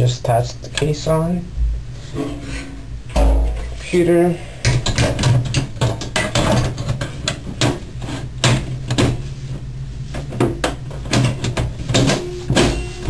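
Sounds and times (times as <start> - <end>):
knocks and clatters of computer panel: 3.1 - 3.8, 4.7 - 7.8, 10.2 - 13.0.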